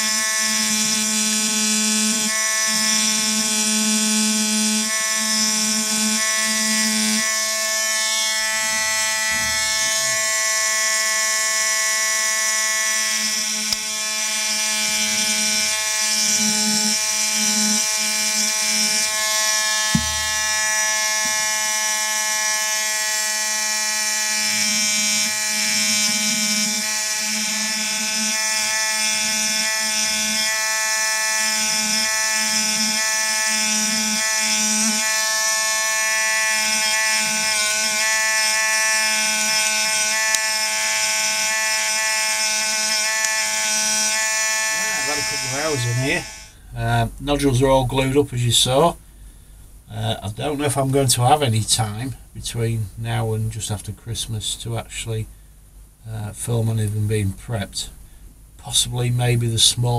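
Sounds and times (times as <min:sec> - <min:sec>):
air scribe buzzing: 0:00.0 - 0:46.9.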